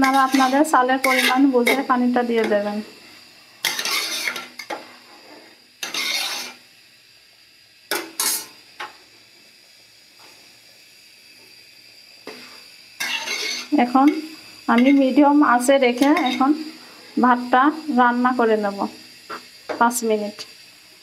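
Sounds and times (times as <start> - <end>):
metal spoon scraping a pot: 0.0 - 2.6, 3.6 - 6.6, 12.3 - 15.1, 16.0 - 16.6
faint steady hiss: 0.0 - 21.0.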